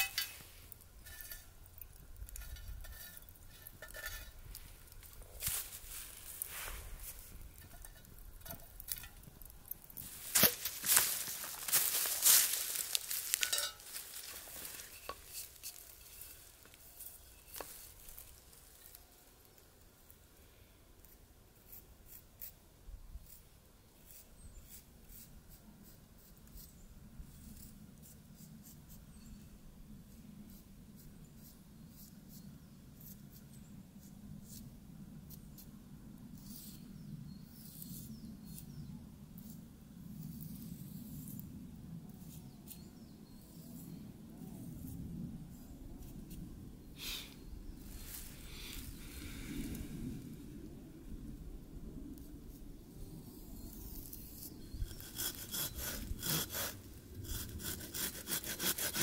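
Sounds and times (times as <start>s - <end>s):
crunching on dry leaves: 4.6s - 7.6s, 8.9s - 19.4s
knife shaving wood: 53.8s - 59.0s.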